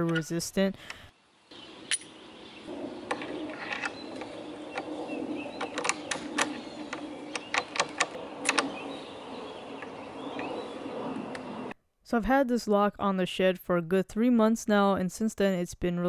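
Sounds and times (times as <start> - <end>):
steady low hum: 0.7 - 11.8.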